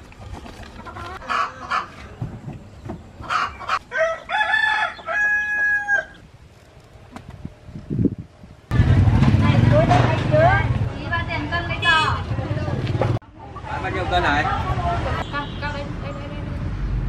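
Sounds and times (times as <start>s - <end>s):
chickens clucking: 0.1s - 6.2s
rooster crowing: 3.4s - 6.2s.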